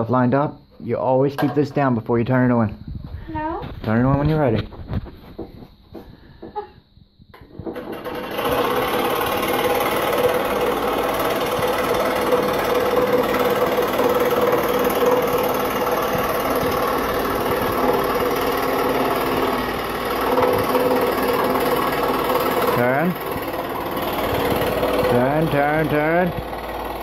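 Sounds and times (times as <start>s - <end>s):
scroll saw cutting wood: 7.8s - 27.0s.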